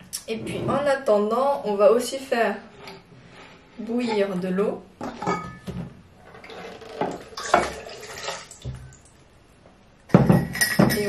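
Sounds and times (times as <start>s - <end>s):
water splashing into kettle: 7.0s - 9.1s.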